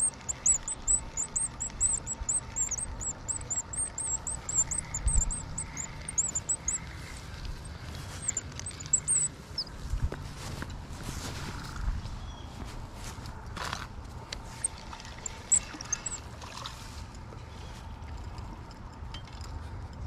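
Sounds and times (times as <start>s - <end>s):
spinning reel squeaking: 0.0s - 6.8s, 7.6s - 9.7s, 14.6s - 16.2s.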